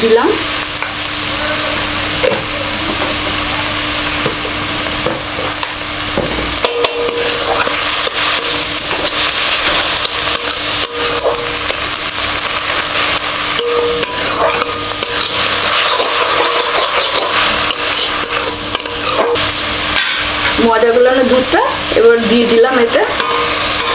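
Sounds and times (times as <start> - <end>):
frying sizzle: 0.0 - 23.9
metal spatula scraping pan: 6.7 - 11.5, 13.6 - 19.4, 23.1 - 23.9.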